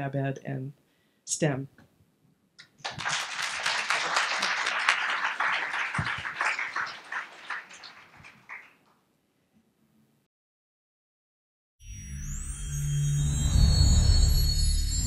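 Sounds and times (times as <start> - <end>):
audience applauding: 2.6 - 8.9.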